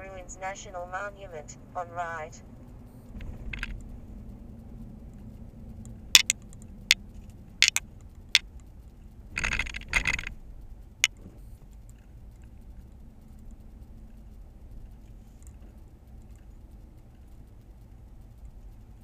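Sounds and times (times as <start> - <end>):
car engine and tyres hum: 0.0 - 19.0
loose things rattling in car: 3.1 - 4.1, 6.2 - 12.6.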